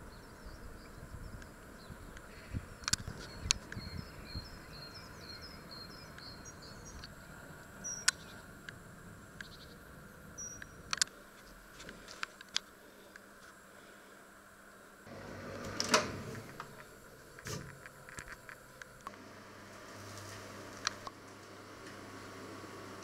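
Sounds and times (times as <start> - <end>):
small bird chirping: 0.0 - 7.1, 7.8 - 8.5, 9.4 - 9.8, 10.4 - 10.9.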